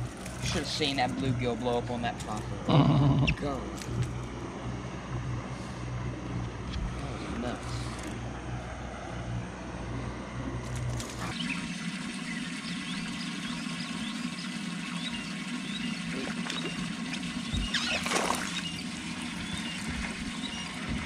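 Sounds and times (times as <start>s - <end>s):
low hum: 0.0s - 21.0s
birds chirping: 11.1s - 21.0s
fish splashing out of water: 16.0s - 19.2s.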